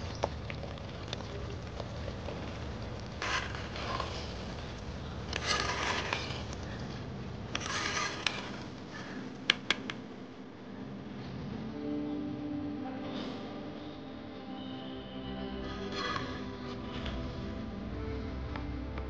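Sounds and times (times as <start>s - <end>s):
food scraping and rustling: 0.0s - 9.8s.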